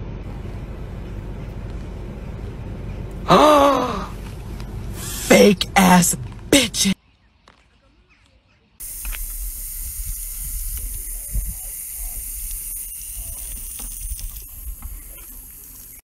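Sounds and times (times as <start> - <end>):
hose spraying water: 4.9 - 6.0, 8.8 - 16.0
wind rumble on microphone: 9.8 - 11.7.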